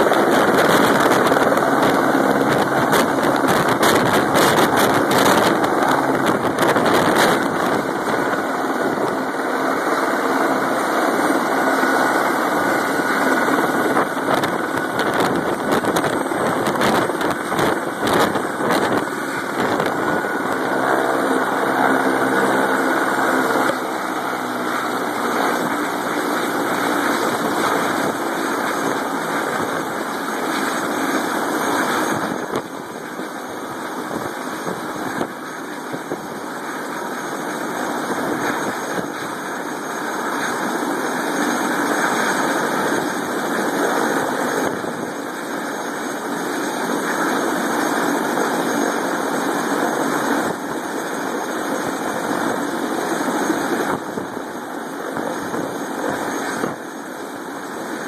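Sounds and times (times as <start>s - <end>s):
helicopter turbine and rotors running: 0.0s - 58.0s.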